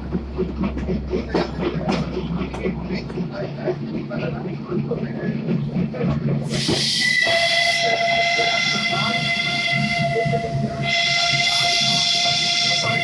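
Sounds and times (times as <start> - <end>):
train running rumble: 0.0 - 13.0
steam hiss: 6.4 - 13.0
steam locomotive whistle: 6.5 - 13.0.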